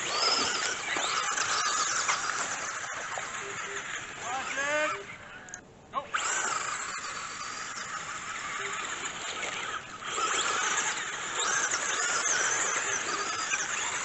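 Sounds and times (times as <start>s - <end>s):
rc car motors whining: 0.0s - 14.0s.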